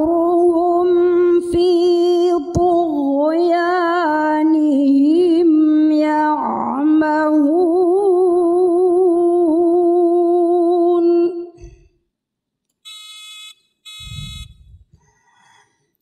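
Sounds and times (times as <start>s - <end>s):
woman reciting melodically: 0.0s - 11.6s.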